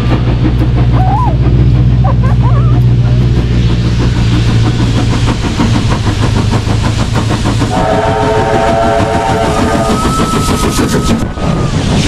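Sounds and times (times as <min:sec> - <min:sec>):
steam train rhythmic chuffing: 0:00.0 - 0:12.0
steam train whistle: 0:07.7 - 0:11.8.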